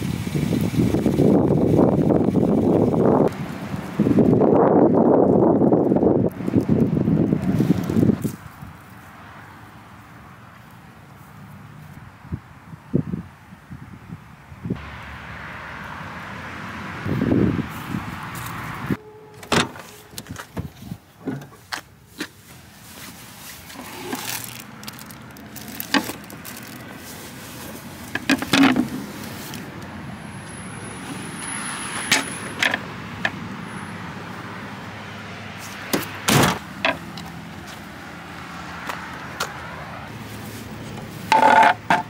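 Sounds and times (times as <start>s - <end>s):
knocks and clunks of handling: 19.4s - 22.4s, 28.1s - 29.0s, 40.9s - 42.0s.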